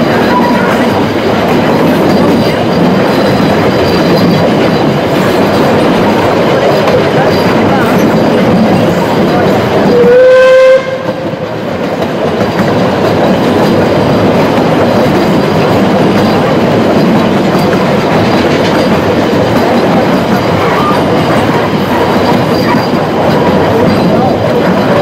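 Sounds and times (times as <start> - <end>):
train wheels on rails: 0.0 - 25.0
steam locomotive whistle: 9.9 - 11.4.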